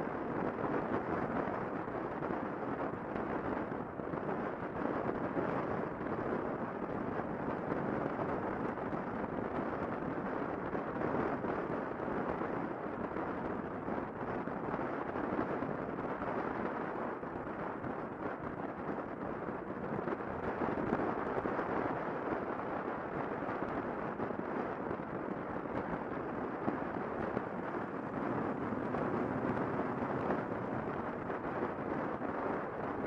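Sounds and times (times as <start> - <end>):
wind rushing over microphone: 0.0 - 33.0
road noise: 25.2 - 33.0.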